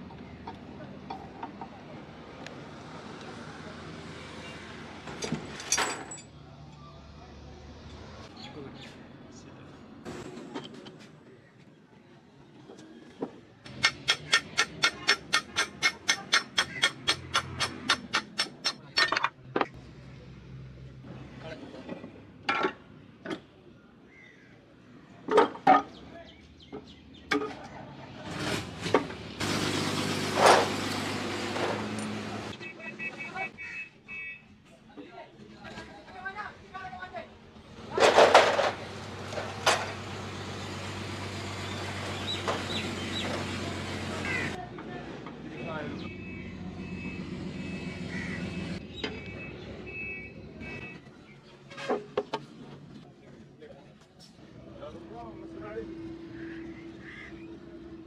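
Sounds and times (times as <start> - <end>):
metal parts knocking and clanking: 5.1 - 6.3, 13.7 - 19.7, 38.0 - 38.8
metal housing clanking on boards: 5.2 - 6.3, 38.0 - 38.8.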